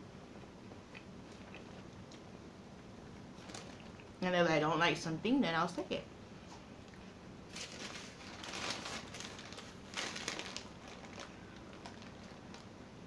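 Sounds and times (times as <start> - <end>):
paper wrapper crinkling: 3.4 - 4.1, 7.5 - 12.7.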